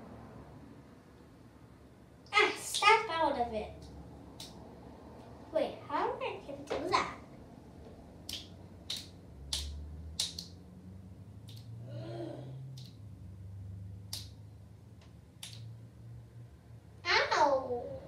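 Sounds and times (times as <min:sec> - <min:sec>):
fingers snapping: 0:03.8 - 0:04.6, 0:08.2 - 0:10.6, 0:11.4 - 0:11.8, 0:12.7 - 0:13.0, 0:14.0 - 0:14.4, 0:15.0 - 0:15.7
girl humming: 0:11.9 - 0:12.7.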